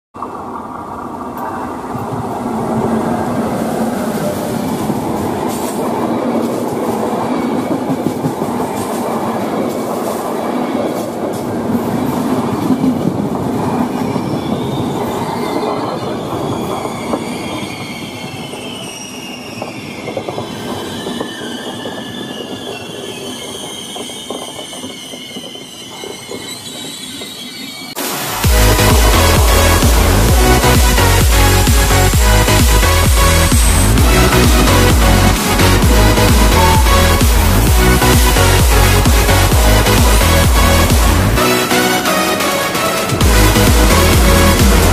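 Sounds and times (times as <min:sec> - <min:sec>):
train wheels rumbling and clattering: 0:00.2 - 0:44.9
wheel squeal: 0:01.4 - 0:44.9
electronic dance music: 0:28.0 - 0:44.9.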